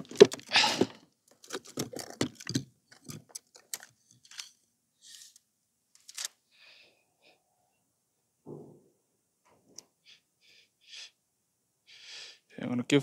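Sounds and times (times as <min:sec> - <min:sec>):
fishing tackle clicking and rattling: 0:01.3 - 0:04.6.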